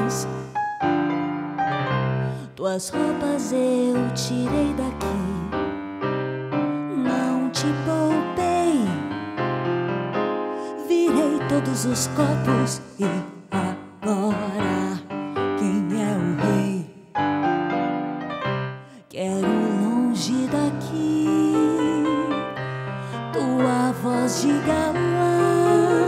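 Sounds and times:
piano accompaniment: 0.0 - 26.0
woman singing with vibrato: 2.4 - 5.6, 6.9 - 9.0, 19.1 - 22.6, 23.2 - 26.0.

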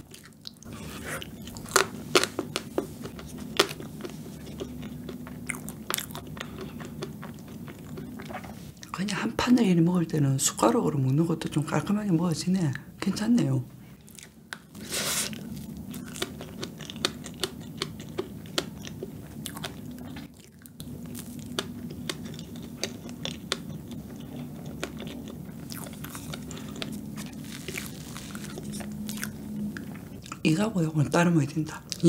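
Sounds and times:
close chewing with wet mouth clicks: 0.0 - 9.0, 15.3 - 30.5.

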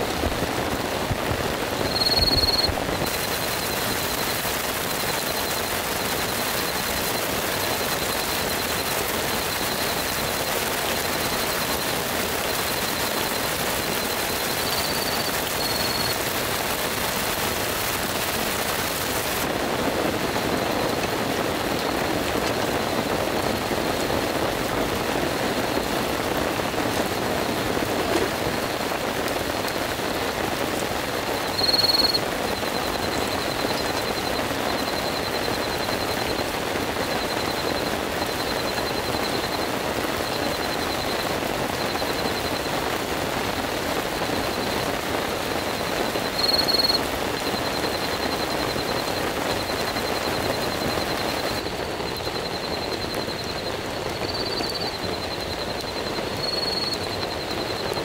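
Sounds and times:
heavy rain falling: 0.0 - 58.0
high chirps: 1.9 - 5.6, 31.5 - 32.2.

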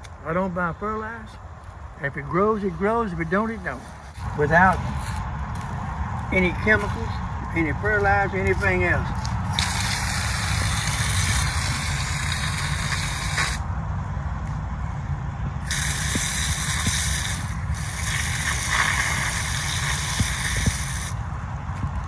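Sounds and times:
hose nozzle spraying water: 9.5 - 13.6, 15.6 - 21.2.

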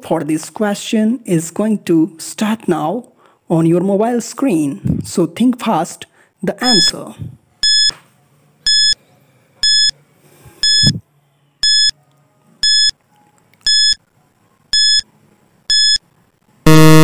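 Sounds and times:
short high electronic beeps: 10.6 - 11.0, 13.7 - 14.0, 14.8 - 15.0, 15.7 - 16.0, 16.7 - 17.0.

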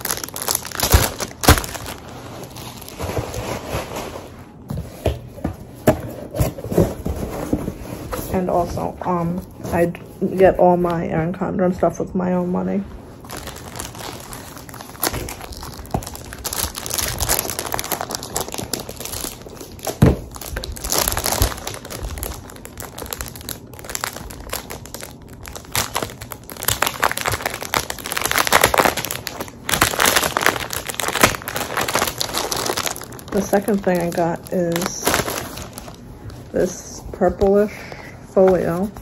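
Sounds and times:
plastic wrap crinkling: 0.0 - 4.6, 12.5 - 39.0.

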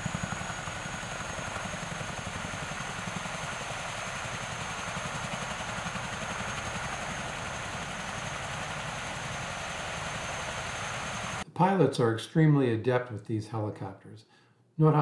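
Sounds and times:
helicopter turbine whine: 0.0 - 11.4.

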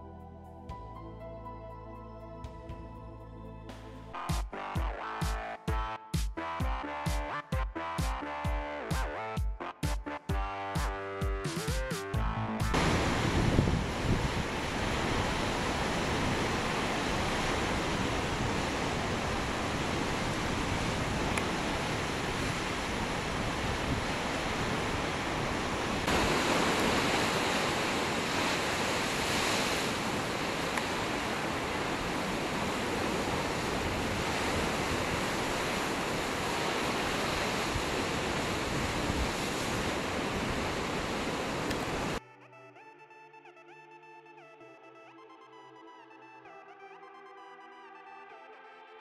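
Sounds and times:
surf breaking against rocks: 12.8 - 42.2.

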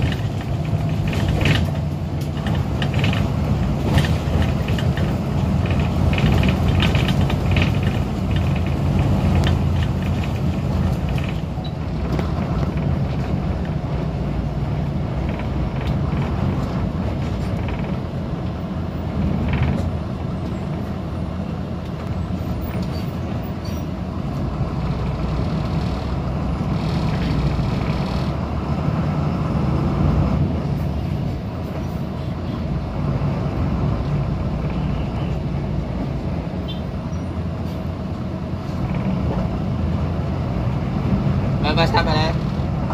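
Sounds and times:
clicks and rattles: 0.0 - 13.8
vehicle engine and road hum: 0.0 - 42.9.

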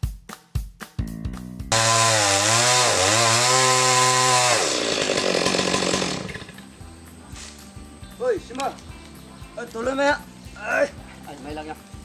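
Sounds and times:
chainsaw cutting log: 1.7 - 6.7.

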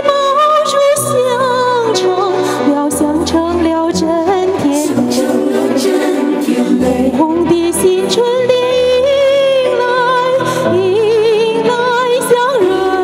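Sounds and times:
accompanying music: 0.0 - 13.0
woman singing with vibrato: 0.0 - 13.0.

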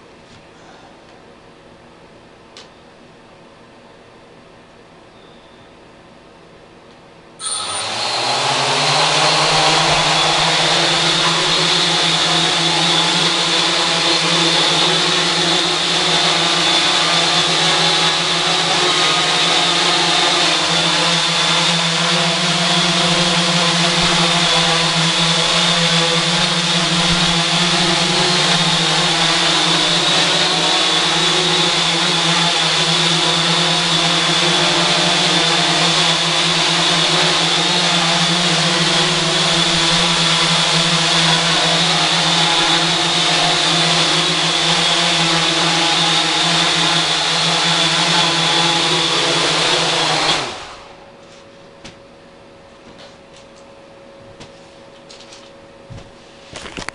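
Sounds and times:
quadcopter motors buzzing and whining: 7.4 - 51.0.

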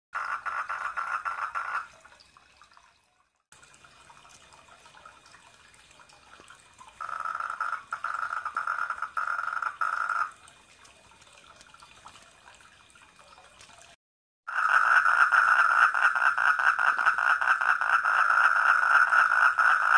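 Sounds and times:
frog trilling: 7.0 - 10.3, 14.5 - 19.9.

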